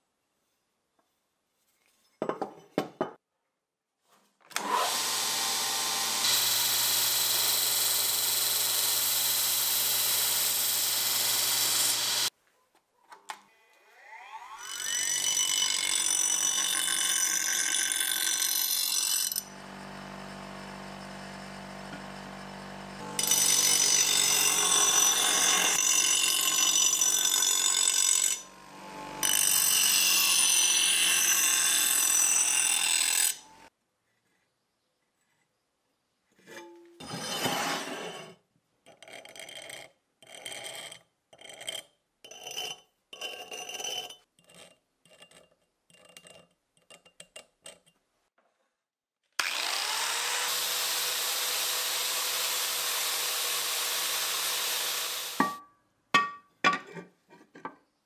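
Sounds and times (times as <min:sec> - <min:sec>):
bench grinder whining: 0:04.6 - 0:12.3, 0:13.5 - 0:33.7, 0:49.4 - 0:55.6
grinder grinding steel blade: 0:04.6 - 0:12.3, 0:13.6 - 0:33.7, 0:36.4 - 0:48.0, 0:49.4 - 0:55.6.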